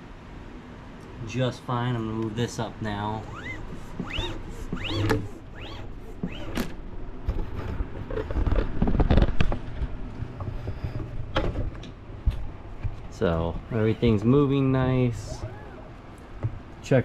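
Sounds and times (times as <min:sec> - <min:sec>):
gantry squeaking on lead screw: 0:03.2 - 0:06.7, 0:15.2 - 0:16.0
bumping and rustling handling noise: 0:03.3 - 0:14.5.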